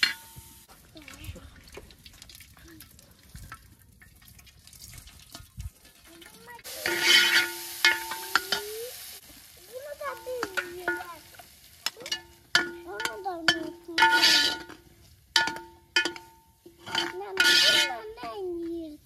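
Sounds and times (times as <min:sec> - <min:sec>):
loud sizzling hiss: 0:00.0 - 0:00.7, 0:06.1 - 0:19.0
pot and ladle clinking: 0:00.0 - 0:00.7, 0:05.2 - 0:08.8, 0:10.0 - 0:18.8.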